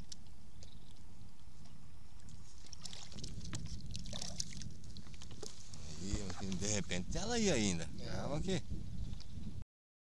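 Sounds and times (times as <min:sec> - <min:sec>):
faint water splashes: 0:02.1 - 0:06.9
wind rumble on microphone: 0:02.2 - 0:09.6.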